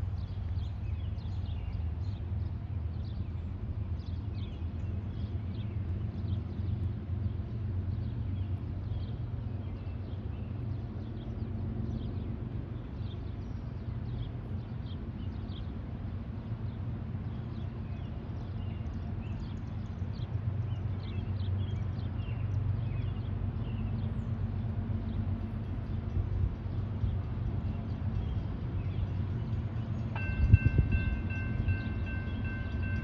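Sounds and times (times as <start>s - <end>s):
diesel locomotive rumble: 0.0s - 33.0s
small birds chirping: 16.6s - 33.0s.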